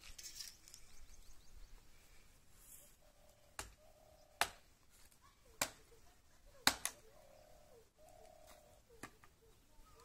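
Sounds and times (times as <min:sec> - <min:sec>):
dove cooing: 0:03.0 - 0:04.4, 0:05.9 - 0:10.0.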